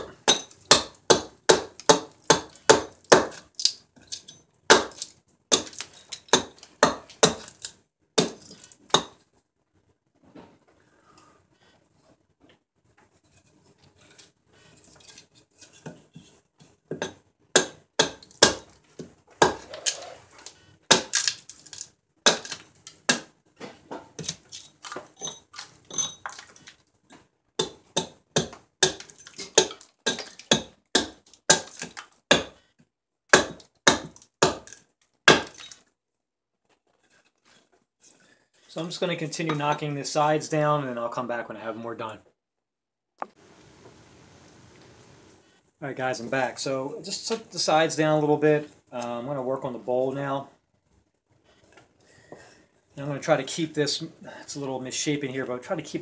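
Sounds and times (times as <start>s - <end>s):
hatchet chopping wood: 0.0s - 3.8s, 4.7s - 9.2s, 16.9s - 18.7s, 19.4s - 19.7s, 20.9s - 23.3s, 27.6s - 32.6s, 33.3s - 35.7s.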